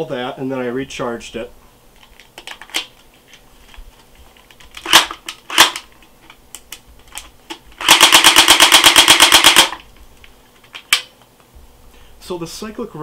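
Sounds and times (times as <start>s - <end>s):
plastic magazine clicks: 4.5s - 9.8s, 10.6s - 11.1s
airsoft gun sharp cracks: 4.8s - 5.9s, 7.8s - 9.8s.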